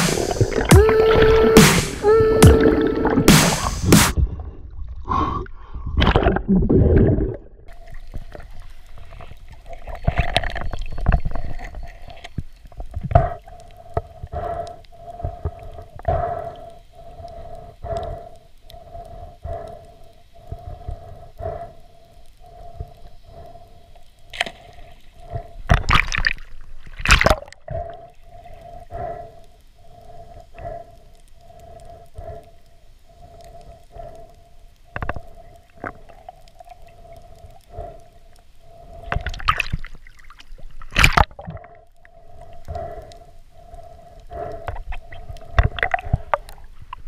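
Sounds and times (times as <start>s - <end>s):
rushing bursts of water: 0.0s - 4.2s
pulsing underwater tone: 0.0s - 4.9s.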